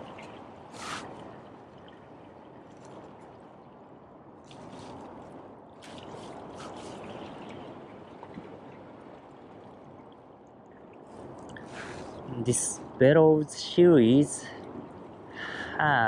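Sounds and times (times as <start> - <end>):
small waves washing against rocks: 0.0 - 3.7, 4.4 - 10.2
water splashing: 0.0 - 13.0.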